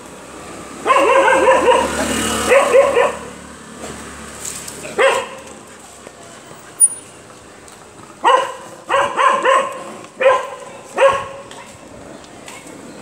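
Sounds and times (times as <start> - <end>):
dogs barking: 0.8 - 3.4, 4.9 - 5.6, 8.2 - 11.5.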